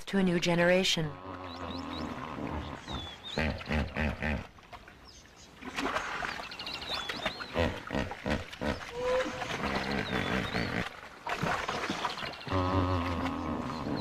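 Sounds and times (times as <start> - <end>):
birds chirping: 0.3 - 14.0
hippopotamuses grunting and honking: 1.1 - 4.5, 12.4 - 14.0.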